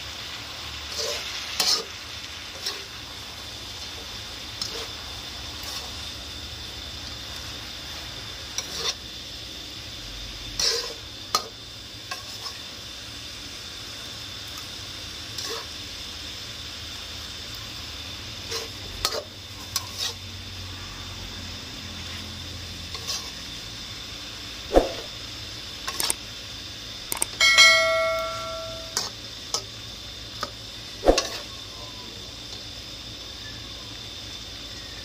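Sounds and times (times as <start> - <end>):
food sizzling in a wok: 0.0 - 35.0
spatula scraping and knocking wok: 0.9 - 2.9, 4.6 - 5.0, 8.0 - 9.1, 10.6 - 12.7, 15.3 - 15.8, 18.4 - 20.2, 22.8 - 23.4.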